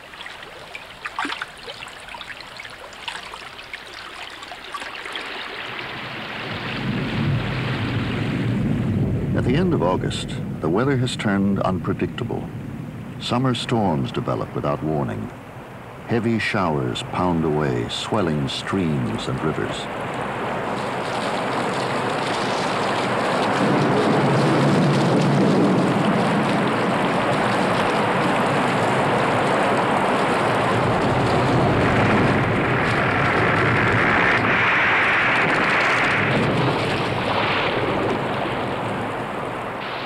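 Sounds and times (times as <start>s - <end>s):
gusting wind: 0.0s - 40.0s
heavy rain: 0.0s - 40.0s
low thunder rumble: 6.0s - 15.4s, 18.9s - 40.0s.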